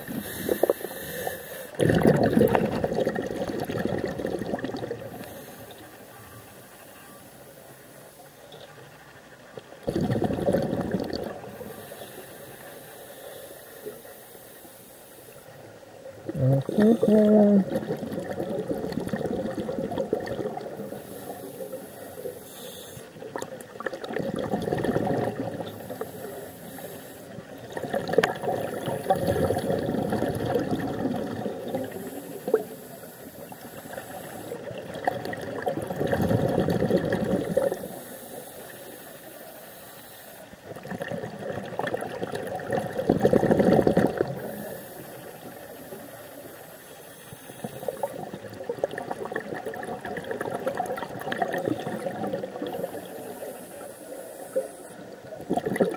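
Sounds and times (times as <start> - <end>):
diver breathing underwater: 0.0 - 6.9, 9.8 - 15.5, 16.3 - 23.4, 24.1 - 34.8, 35.8 - 40.5, 43.3 - 48.5, 50.4 - 55.9
exhaled bubbles rushing: 1.7 - 5.4, 9.8 - 11.8, 16.2 - 22.3, 23.2 - 26.4, 27.3 - 32.8, 33.4 - 38.0, 40.6 - 44.6, 47.6 - 53.5, 55.1 - 55.9.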